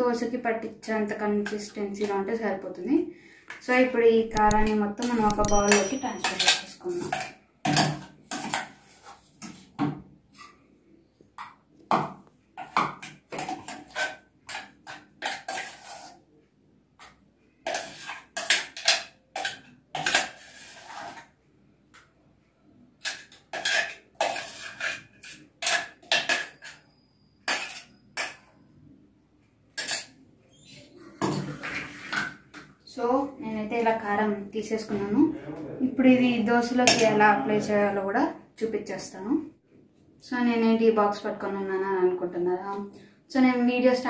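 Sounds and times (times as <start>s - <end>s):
metal spoon scraping in steel jar: 4.5s - 7.3s, 15.2s - 16.2s, 17.7s - 21.2s, 23.0s - 28.4s.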